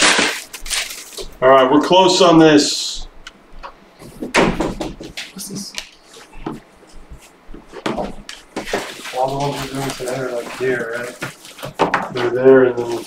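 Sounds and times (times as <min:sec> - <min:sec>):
objects knocking on a desk: 0:03.6 - 0:05.3, 0:07.5 - 0:08.8.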